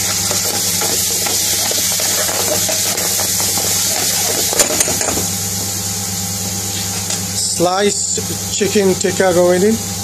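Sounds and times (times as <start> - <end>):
utensil clicking on pan: 0.0 - 5.2
sauce sizzling in a frying pan: 0.0 - 5.5
low mechanical hum: 0.0 - 10.0.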